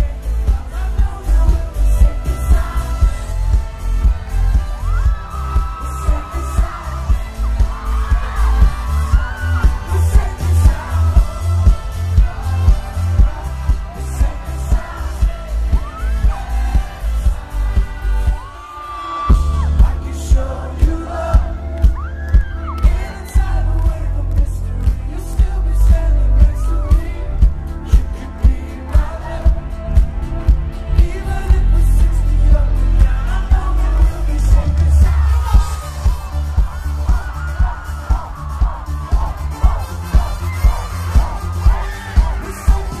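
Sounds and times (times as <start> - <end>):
kick drum and bass beat: 0.0 - 18.6, 19.3 - 43.0
trumpet: 0.0 - 20.5
person singing: 0.0 - 43.0.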